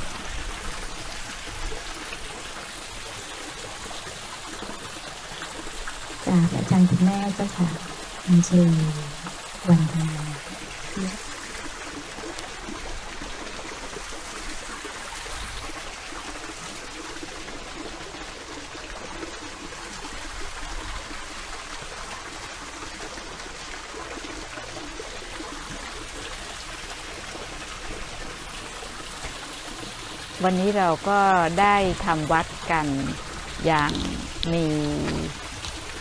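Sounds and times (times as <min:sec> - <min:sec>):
water trickling in water feature: 0:00.0 - 0:36.0.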